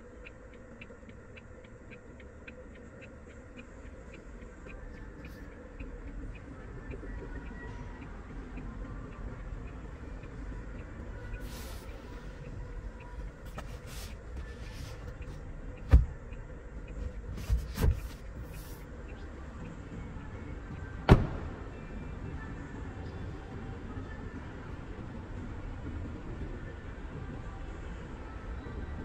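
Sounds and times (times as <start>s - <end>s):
steady low hum: 0.0s - 29.0s
knocks in car cabin: 15.9s - 16.2s, 21.1s - 21.5s.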